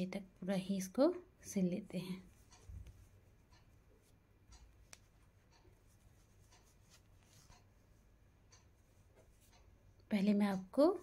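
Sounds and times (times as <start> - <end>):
knitted fabric rustling: 2.0 - 9.8.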